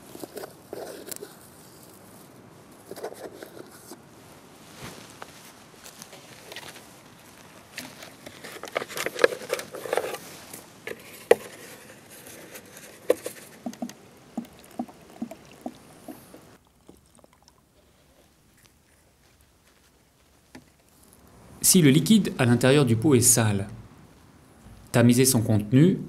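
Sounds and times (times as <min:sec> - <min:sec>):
dry straw crackling: 0:04.6 - 0:10.7, 0:11.5 - 0:21.4.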